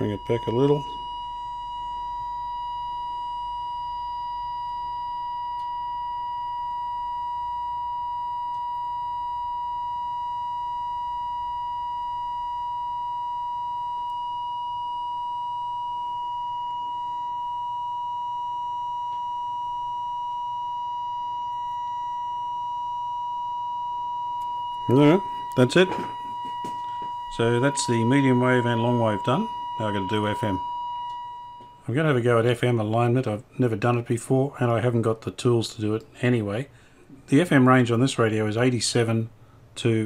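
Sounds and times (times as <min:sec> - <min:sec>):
radio test tone: 0:00.0 - 0:11.7, 0:15.5 - 0:33.3.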